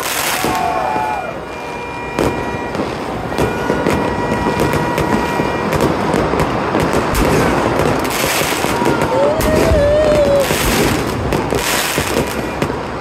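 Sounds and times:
fireworks bangs: 0.0 - 13.0
fireworks crackle: 0.0 - 13.0.

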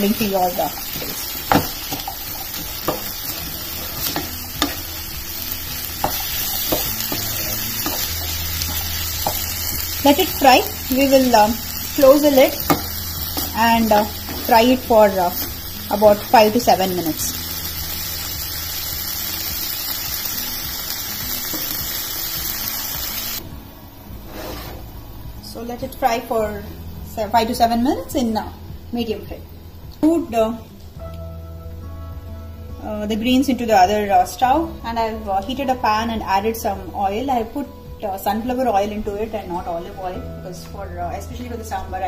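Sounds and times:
food sizzling in oil: 0.0 - 23.4
spatula scraping and knocking pan: 0.8 - 5.0, 5.9 - 9.7, 12.4 - 14.6.

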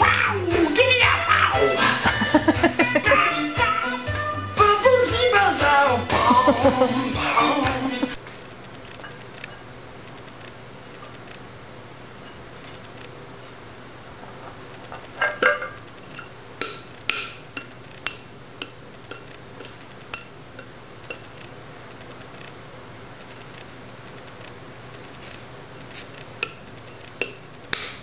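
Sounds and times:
metal saucepan clanking: 14.9 - 21.5, 26.4 - 28.0.

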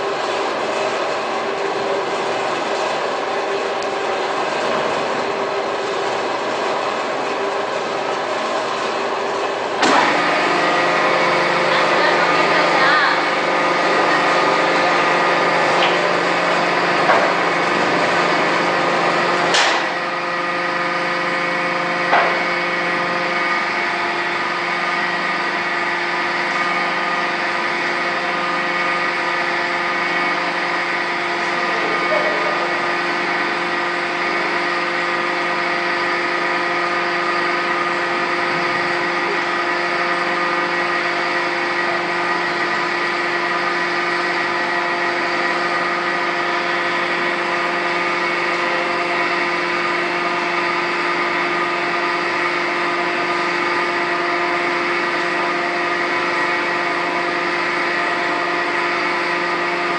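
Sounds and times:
machinery humming: 0.0 - 59.9.

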